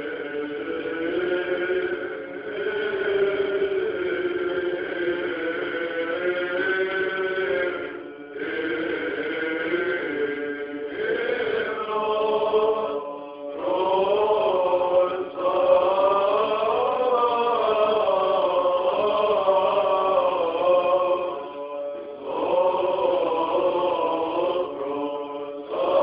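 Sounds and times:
men's voices chanting: 22.0 - 26.0.

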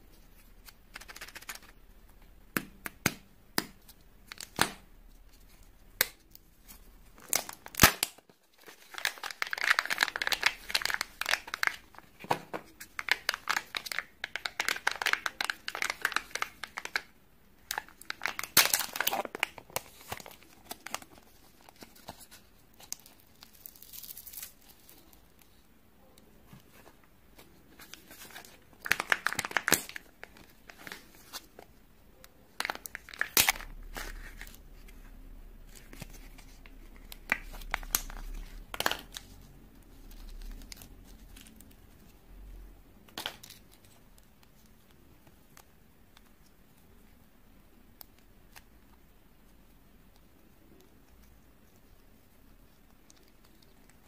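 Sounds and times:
foil wrappers crinkling: 7.2 - 17.1, 17.7 - 25.2.

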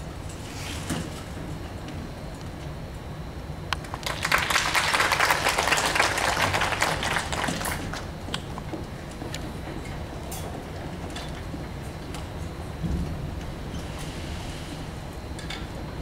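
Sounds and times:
audience applause: 3.8 - 8.1.

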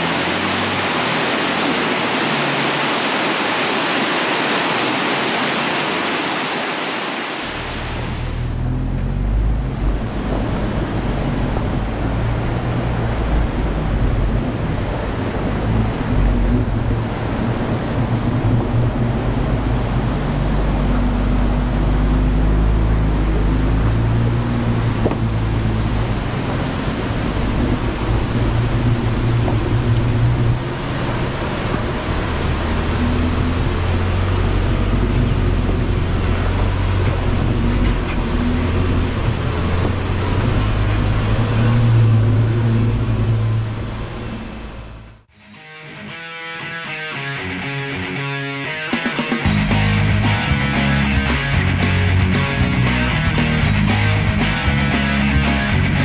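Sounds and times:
rushing stream water: 0.0 - 44.2
tyre and wind rumble: 0.0 - 45.3
low engine drone: 7.2 - 45.6, 49.4 - 56.0.

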